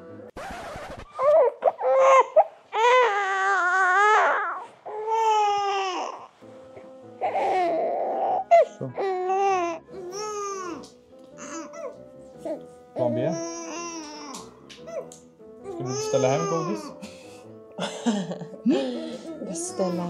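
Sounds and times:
baby crying: 1.2 - 6.3, 7.2 - 17.0.

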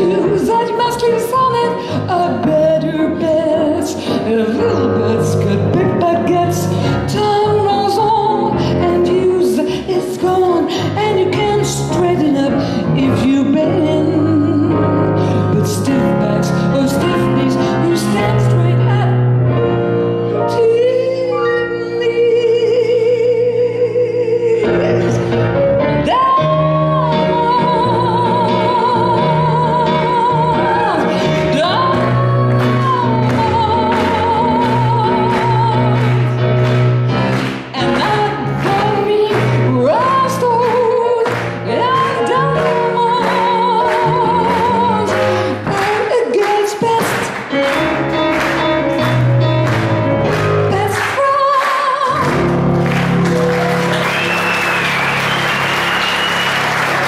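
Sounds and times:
women singing with vibrato: 0.0 - 19.3, 26.0 - 36.4, 37.6 - 47.6, 50.7 - 52.4
piano accompaniment: 0.0 - 57.0
cabaret band playing: 29.2 - 51.4, 52.2 - 57.0.

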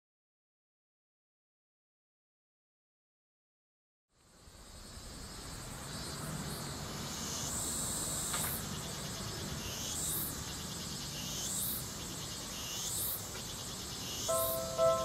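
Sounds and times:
cicadas buzzing: 4.3 - 15.0.

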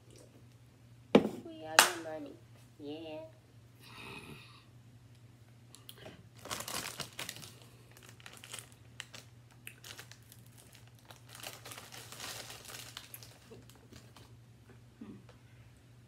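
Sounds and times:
chip bag crinkling: 6.4 - 14.4.

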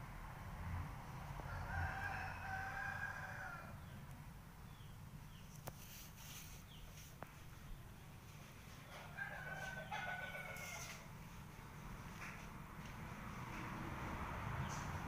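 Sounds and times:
rooster crowing: 1.4 - 3.9, 8.9 - 11.1.

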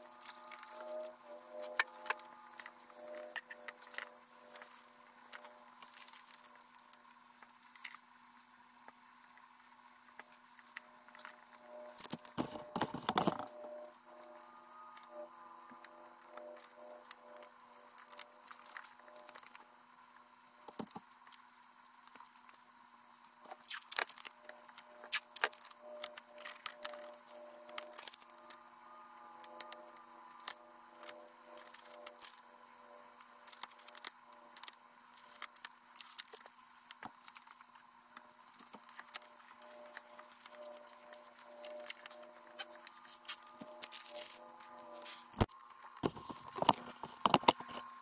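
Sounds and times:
faint steady hum: 0.0 - 48.0
plastic film crinkling: 38.5 - 48.0.

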